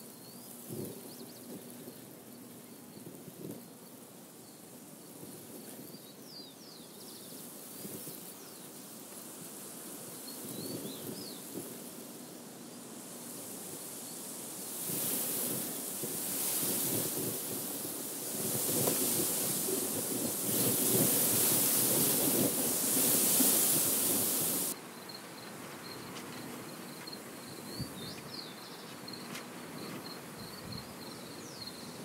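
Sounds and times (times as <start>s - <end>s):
wind rustling through wheat: 0.0s - 32.0s
wind buffeting microphone: 10.4s - 11.8s, 14.7s - 24.8s
small bird chirping: 24.5s - 32.0s.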